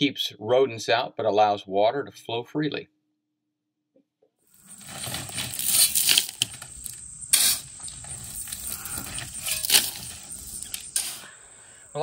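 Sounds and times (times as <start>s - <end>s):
gravel rattling and pouring: 4.5s - 11.3s
shovel scraping gravel: 4.5s - 11.3s.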